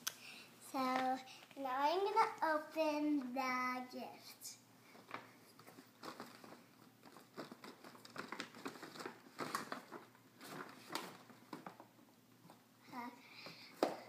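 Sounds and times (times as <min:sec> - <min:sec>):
paper bag rustling and crinkling: 0:04.9 - 0:11.9.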